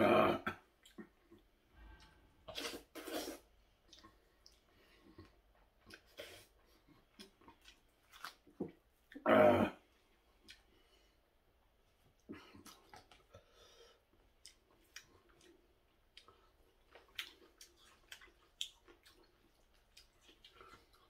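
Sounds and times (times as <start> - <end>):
noodles being slurped: 2.5 - 4.1.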